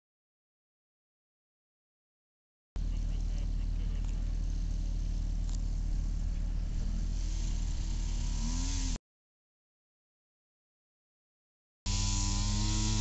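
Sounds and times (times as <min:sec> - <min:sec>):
model airplane engine revving: 0:03.1 - 0:09.0, 0:11.9 - 0:13.0.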